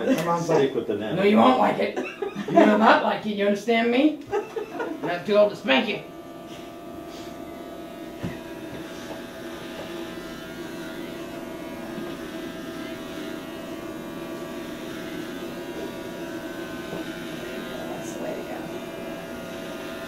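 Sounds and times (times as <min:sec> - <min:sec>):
electric hair clippers buzzing: 0:00.0 - 0:20.0.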